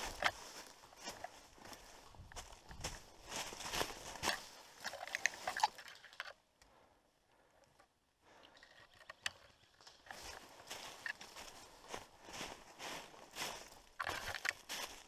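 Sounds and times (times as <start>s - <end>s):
footsteps crunching dry leaves: 0.0s - 5.8s, 10.0s - 15.0s.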